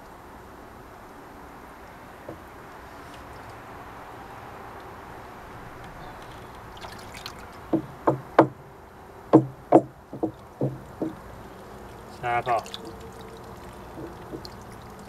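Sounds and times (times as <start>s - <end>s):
water rushing: 0.0s - 15.0s
hollow knocks on a tank: 7.7s - 8.6s, 9.3s - 11.3s, 13.9s - 14.6s.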